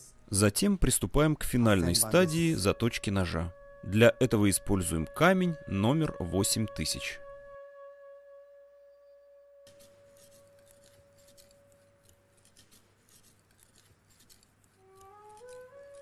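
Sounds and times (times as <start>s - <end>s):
flute music: 1.6s - 12.1s, 14.8s - 16.0s
knife scraping on whetstone: 9.7s - 16.0s.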